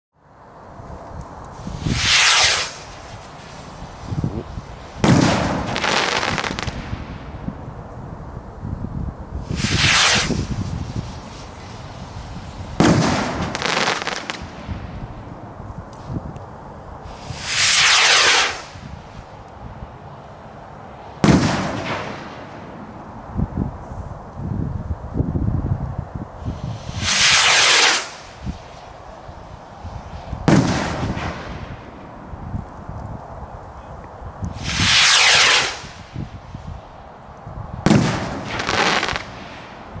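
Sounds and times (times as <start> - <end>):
firework crackling: 1.2 - 8.0, 9.3 - 24.3, 26.2 - 33.7, 34.4 - 40.0
firework rocket launch whoosh: 1.5 - 7.6, 9.3 - 16.2, 17.0 - 19.4, 21.0 - 24.2, 26.3 - 32.4, 34.5 - 40.0
firework sharp bang: 1.8 - 7.4, 9.5 - 15.2, 21.2 - 22.9, 26.5 - 28.8, 30.0 - 32.1, 34.6 - 36.3, 37.8 - 39.8.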